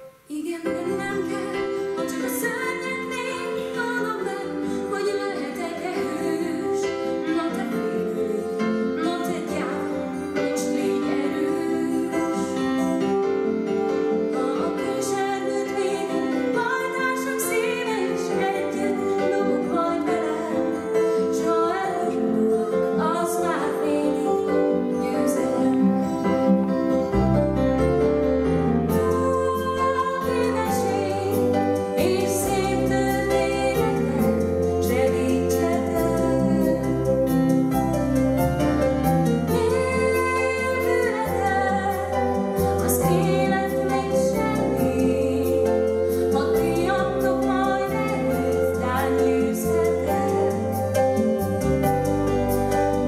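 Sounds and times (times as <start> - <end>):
woman singing: 0.0 - 27.4, 28.7 - 53.0
instrumental accompaniment: 0.0 - 53.0.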